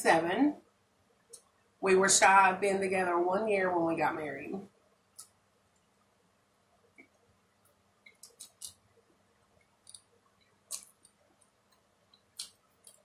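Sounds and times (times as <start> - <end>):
wet mouth clicks chewing: 8.0 - 8.8, 10.7 - 13.0.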